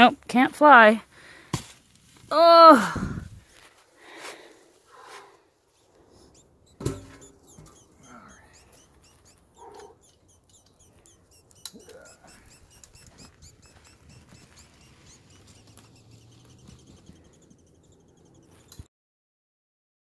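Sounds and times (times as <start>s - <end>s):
beetle squeaking chirps: 6.0s - 18.9s
sharp tick: 6.4s - 18.9s.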